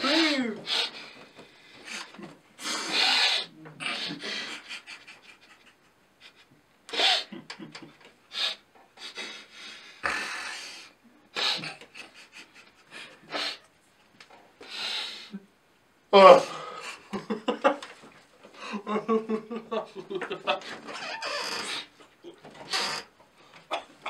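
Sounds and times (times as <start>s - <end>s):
stifled laughter: 1.9s - 8.1s, 11.4s - 13.6s, 18.6s - 21.0s.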